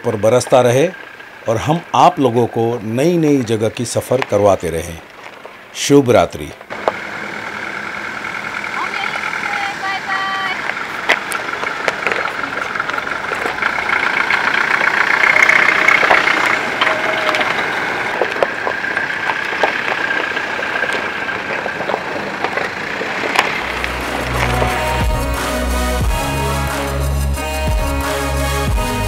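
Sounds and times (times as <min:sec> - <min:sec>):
vehicles driving past slowly: 0:00.0 - 0:29.0
stones clicking under tyres: 0:02.9 - 0:07.1, 0:10.6 - 0:24.7.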